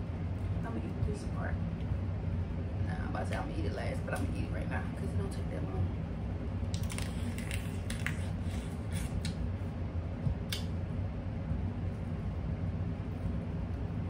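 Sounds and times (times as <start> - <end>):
steady low hum: 0.0 - 14.0
crab shells cracking: 6.7 - 8.4.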